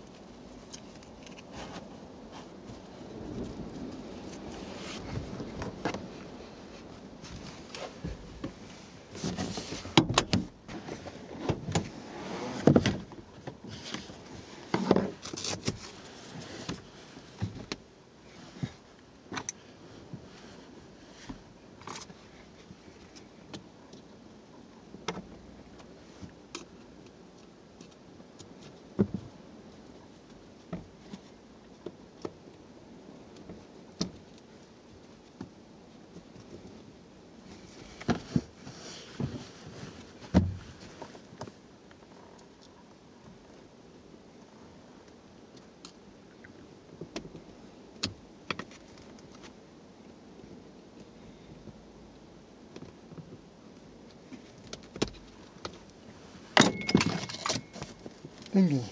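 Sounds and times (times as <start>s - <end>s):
car seat cushion rustling and knocking: 7.2s - 17.8s, 37.5s - 41.2s.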